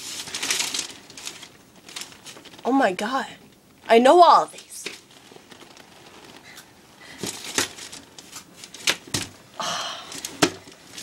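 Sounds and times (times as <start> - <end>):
paper handling: 0.0 - 2.6, 4.5 - 9.3.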